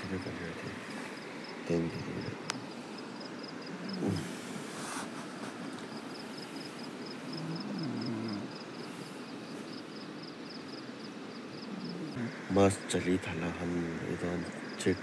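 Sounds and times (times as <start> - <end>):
faint voices: 0.0 - 5.8
insect chirping: 0.0 - 15.0.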